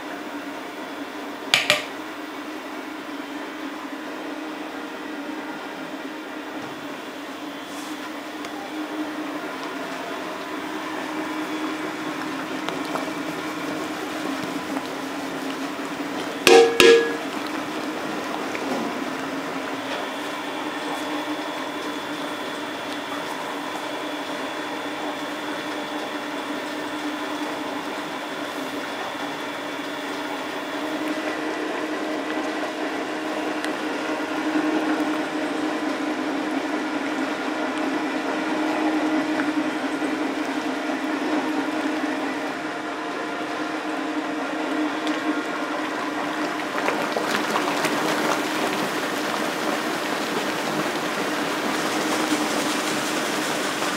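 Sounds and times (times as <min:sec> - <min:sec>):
machinery humming: 0:06.8 - 0:46.3
moving liquid: 0:46.5 - 0:53.9.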